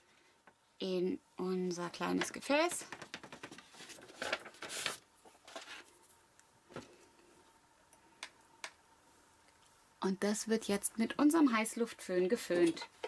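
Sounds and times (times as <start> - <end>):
paper rustling and scraping: 3.0 - 6.1.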